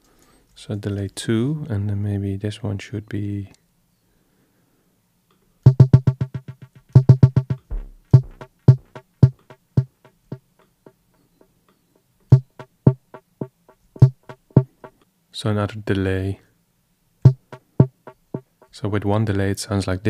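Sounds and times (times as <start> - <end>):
low pitched distorted hits with echoes: 5.7 - 9.5.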